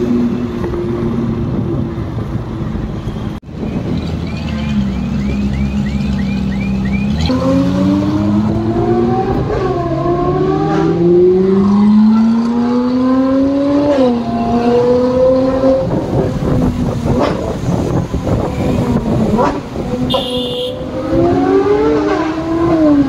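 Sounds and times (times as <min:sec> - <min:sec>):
sports car engine revving: 0:04.8 - 0:23.0.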